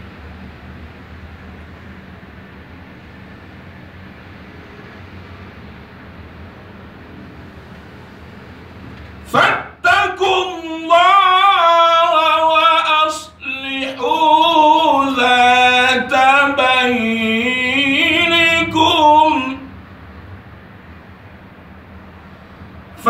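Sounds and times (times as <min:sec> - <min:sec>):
man chanting melodic recitation: 0:09.3 - 0:19.7.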